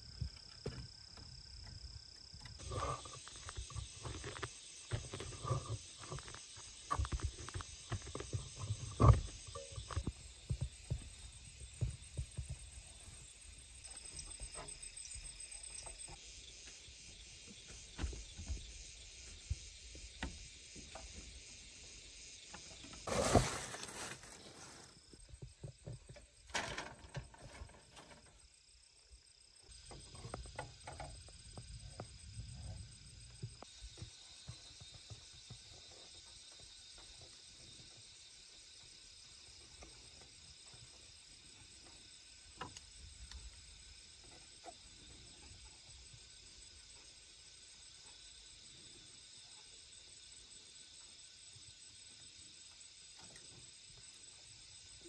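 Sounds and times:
rustling: 23.0 - 25.0.

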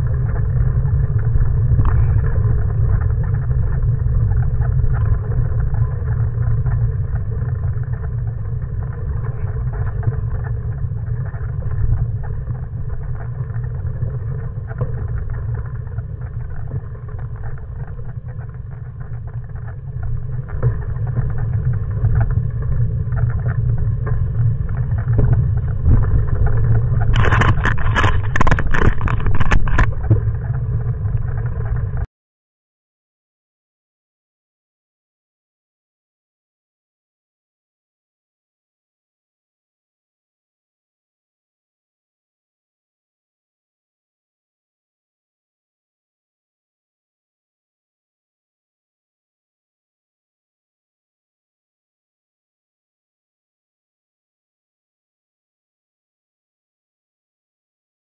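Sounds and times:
wind buffeting microphone: 23.1 - 32.0.

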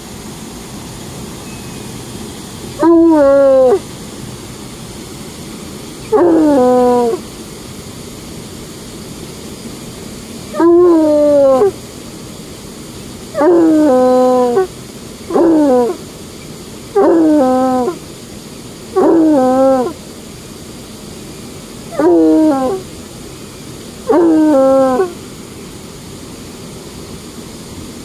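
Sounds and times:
water rushing over spillway: 0.0 - 28.0
dog baying: 2.8 - 3.8, 6.1 - 7.2, 10.6 - 11.7, 13.4 - 14.7, 15.3 - 16.0, 17.0 - 18.0, 19.0 - 20.0, 21.9 - 22.8, 24.1 - 25.2.

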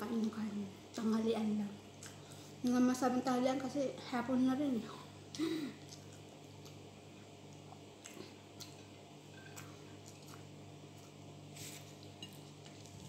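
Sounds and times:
steady low hum: 0.0 - 13.0
faint chewing of food: 2.0 - 2.5, 5.8 - 13.0.

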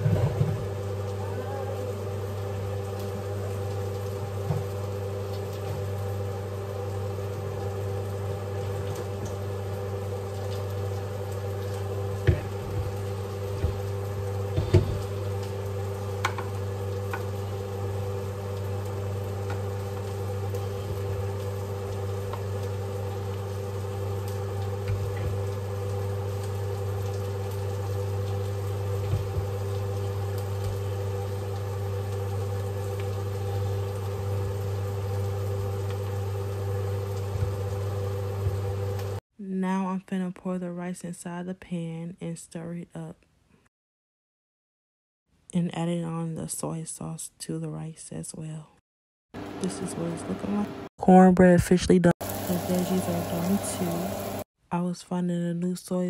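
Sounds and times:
kitchen appliance humming: 0.0 - 39.2, 49.4 - 50.9, 52.2 - 54.5.

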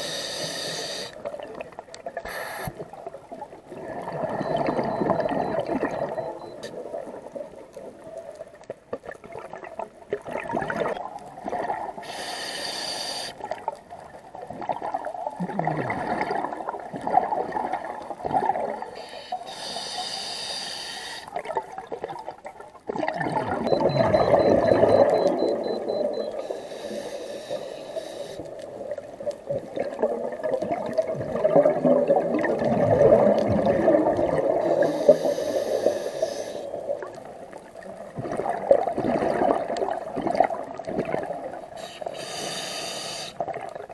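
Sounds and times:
regulator inhalation hisses: 0.0 - 1.2, 2.3 - 2.8, 12.0 - 13.4, 19.0 - 21.3, 26.4 - 28.4, 34.6 - 36.7, 41.8 - 43.4
gurgling exhaled bubbles: 2.8 - 7.9, 9.0 - 12.0, 13.4 - 19.0, 21.3 - 26.3, 28.5 - 35.2, 36.8 - 41.8.

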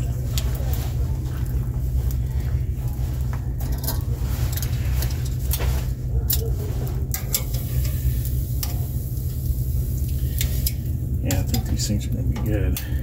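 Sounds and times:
steady low rumble: 0.0 - 13.0
tongs clicking on grill grate: 6.2 - 6.5, 7.1 - 13.0.

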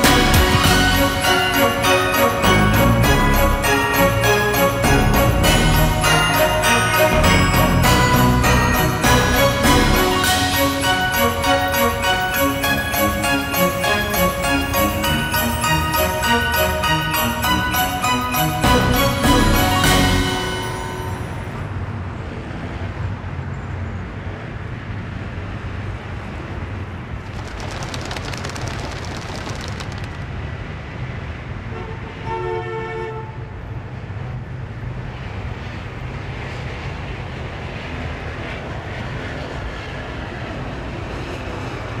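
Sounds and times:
passing train rumble: 0.0 - 42.0
train horn blast: 31.7 - 33.6.

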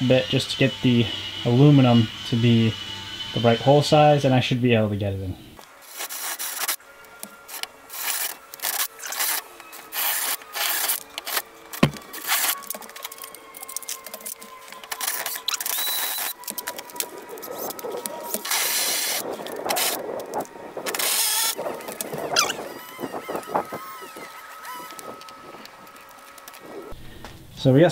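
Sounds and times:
drill bit grinding through metal: 0.0 - 4.9, 7.5 - 12.7, 14.2 - 20.2, 20.8 - 27.0
faint drill motor whine: 0.0 - 27.5.

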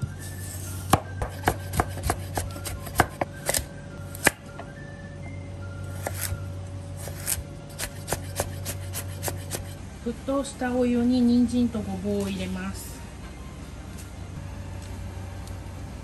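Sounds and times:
quiet background music: 0.0 - 16.0
knife chopping on wooden board: 0.9 - 3.6, 7.0 - 9.8.

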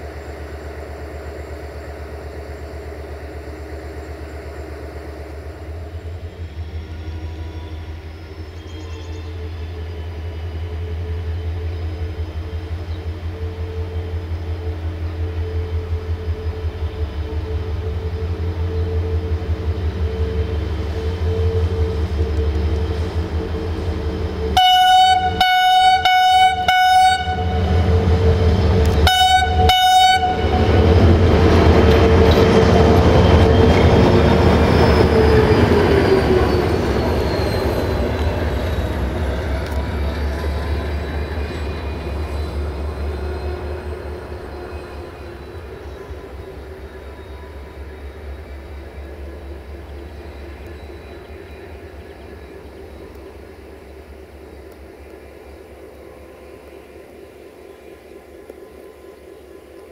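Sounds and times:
diesel engine drone: 0.0 - 59.9
train horn toots: 10.8 - 46.4.

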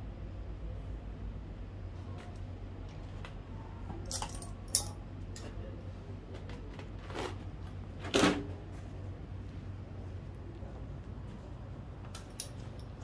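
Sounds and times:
steady low hum: 0.0 - 13.0
metal tools clicking and clinking: 4.0 - 5.5, 12.1 - 13.0.

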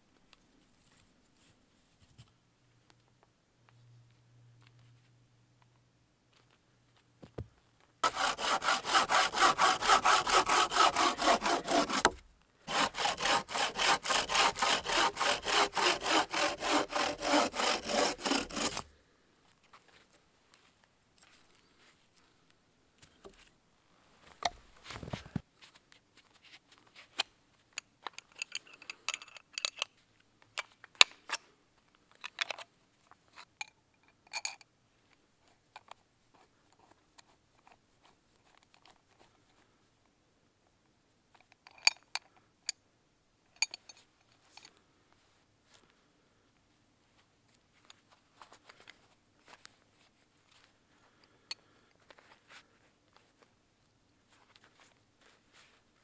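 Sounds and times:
dull heavy handling noise: 6.3 - 18.9
wooden stick clicking and scraping: 8.0 - 18.9.

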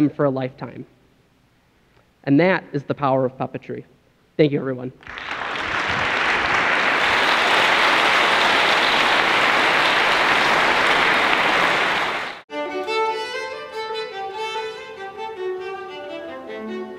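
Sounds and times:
audience applauding: 5.0 - 12.4
bowed strings music with violin: 12.5 - 16.9.

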